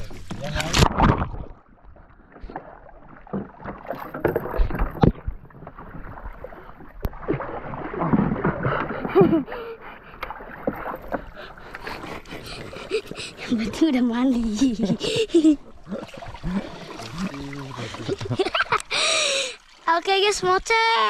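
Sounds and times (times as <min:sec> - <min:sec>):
paddle splashing in water: 0:00.0 - 0:21.0
paddle knocking against hull: 0:02.6 - 0:09.3.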